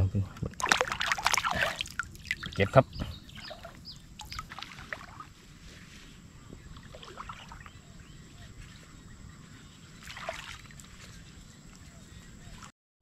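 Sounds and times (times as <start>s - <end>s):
floodwater sloshing and splashing: 0.5s - 5.8s, 6.6s - 8.0s, 9.9s - 12.7s.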